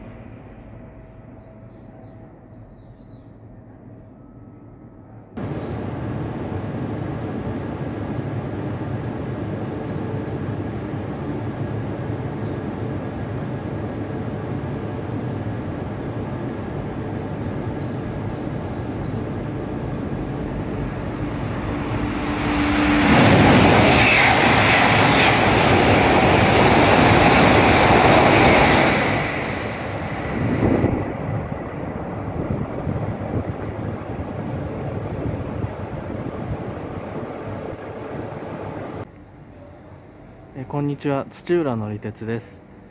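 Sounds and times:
train whine dropping in pitch: 0.0s - 40.6s
high-speed train passing: 0.0s - 42.9s
rush of air and wheels: 5.4s - 39.1s.

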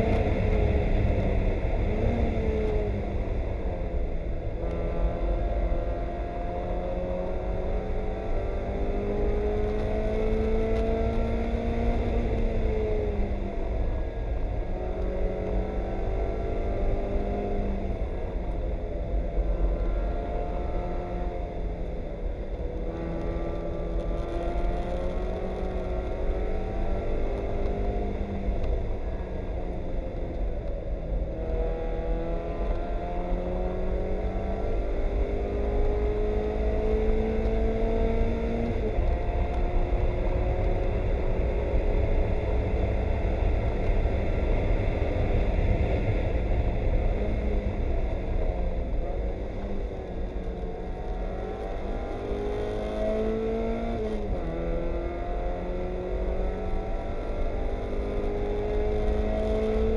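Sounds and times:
race car engine revving: 31.3s - 59.9s.

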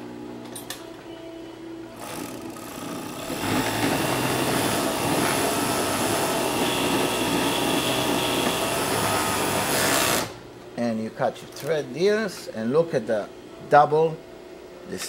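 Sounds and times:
overlock sewing machine whirring: 2.0s - 10.4s.

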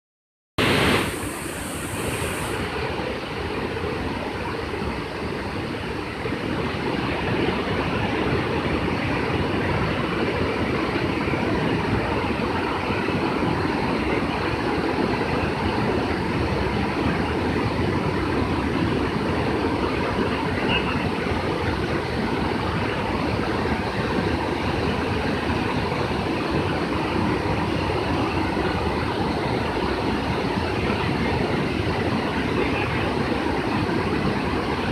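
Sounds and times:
high hiss: 0.6s - 3.0s
water rushing over weir: 0.6s - 34.9s.

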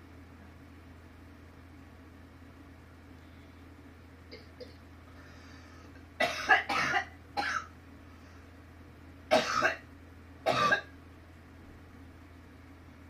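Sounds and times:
person coughing: 6.2s - 7.7s, 9.3s - 9.8s, 10.5s - 10.9s.

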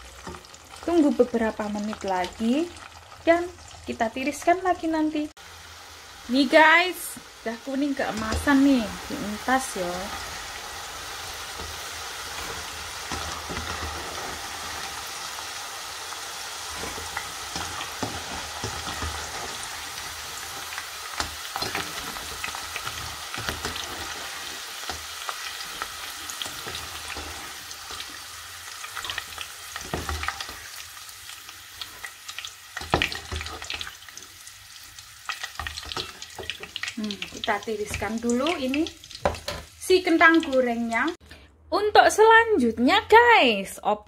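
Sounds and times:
fries sizzling in hot oil: 0.0s - 41.2s.

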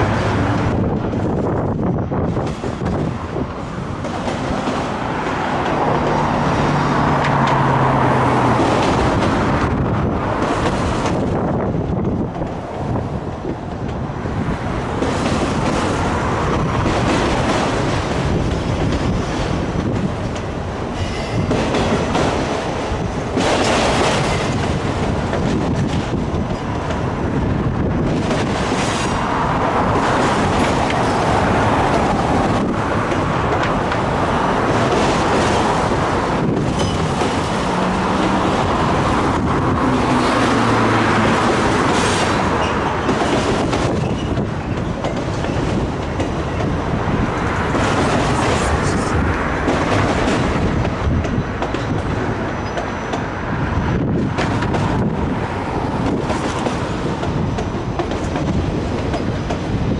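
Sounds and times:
clickety-clack over rail joints: 0.0s - 59.9s
wheels on rail: 0.0s - 59.9s.

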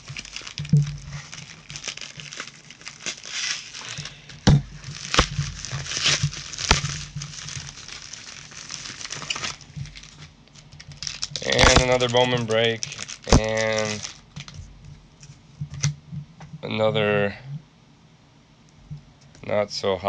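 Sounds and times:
envelope and plastic sleeves rustling: 0.0s - 15.9s.

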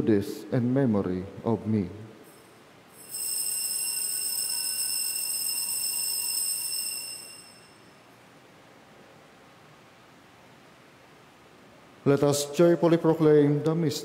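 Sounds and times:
bells ringing: 2.2s - 8.1s.

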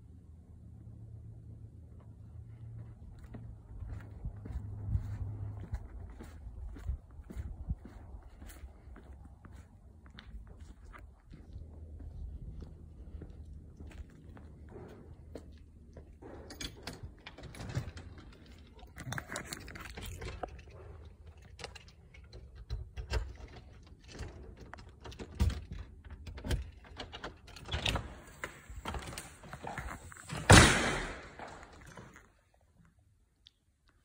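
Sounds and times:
footsteps crunching on gravel: 3.1s - 14.6s
loud thump: 30.3s - 31.6s.

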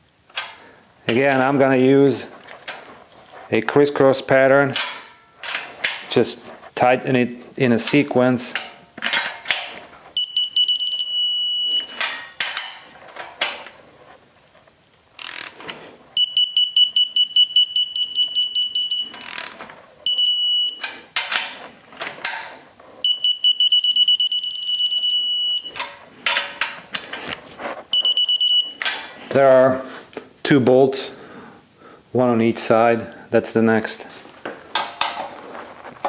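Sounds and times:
torque wrench beeping: 10.2s - 12.0s, 16.2s - 19.5s, 20.1s - 20.9s, 23.0s - 25.9s, 27.9s - 29.0s.

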